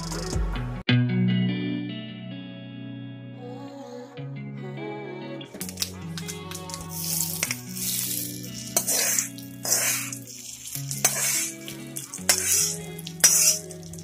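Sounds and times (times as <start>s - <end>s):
hot oil sizzling: 5.6s - 14.0s.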